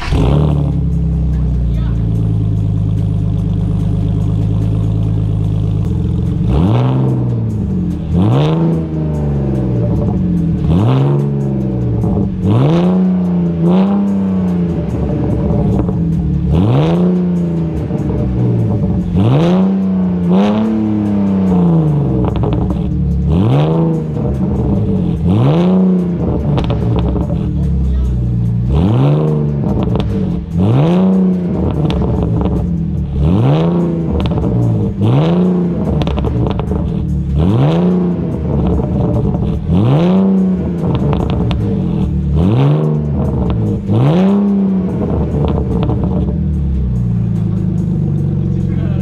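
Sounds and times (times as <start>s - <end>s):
car engine idling and revving: 0.0s - 49.0s.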